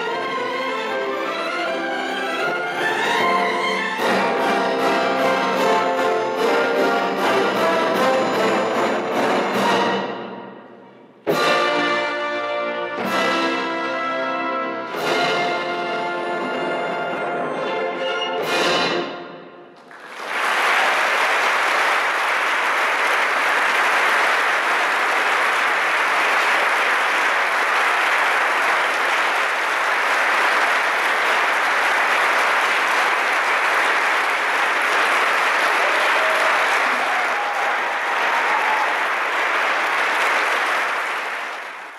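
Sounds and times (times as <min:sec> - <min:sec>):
audience applauding: 0:19.8 - 0:41.9.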